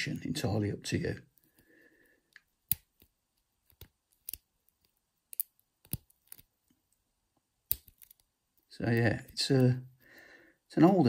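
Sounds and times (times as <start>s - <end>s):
lock pick clicking in padlock: 3.7s - 4.5s.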